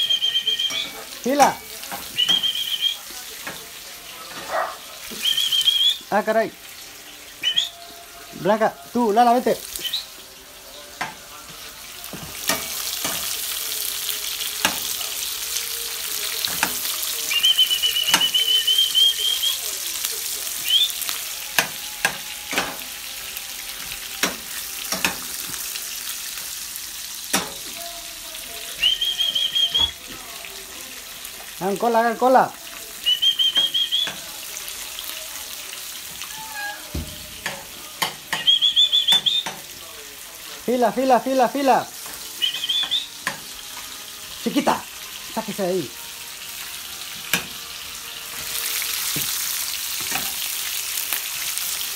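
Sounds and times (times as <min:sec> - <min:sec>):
high squeaky chirps: 0:00.0 - 0:03.0, 0:36.2 - 0:37.0, 0:42.4 - 0:43.2
sausages sizzling in a frying pan: 0:00.0 - 0:51.9.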